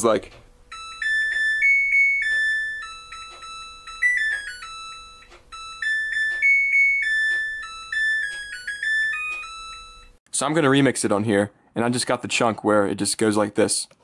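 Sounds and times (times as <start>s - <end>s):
washing machine beeping melody: 0.0s - 10.2s.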